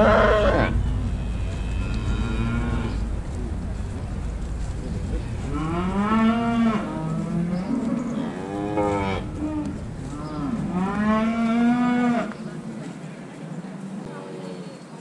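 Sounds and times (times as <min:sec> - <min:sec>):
cattle mooing: 0:00.0 - 0:03.2, 0:05.5 - 0:12.3.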